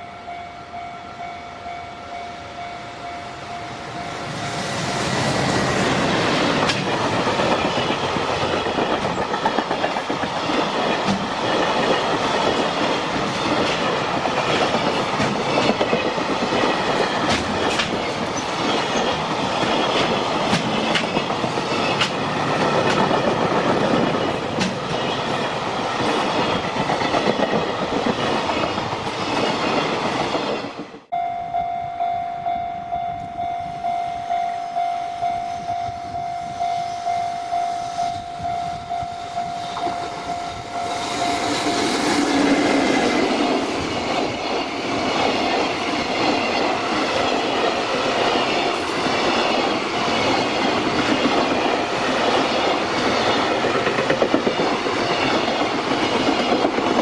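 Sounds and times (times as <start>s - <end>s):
level crossing warning bell: 0.0s - 5.4s, 31.1s - 42.2s
train wheels clattering over rails: 4.8s - 31.1s, 40.9s - 57.0s.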